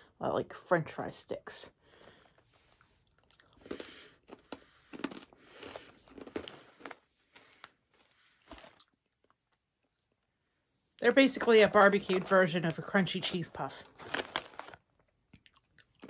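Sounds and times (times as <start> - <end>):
crunching and chewing snack: 1.9 - 9.9, 13.8 - 16.0.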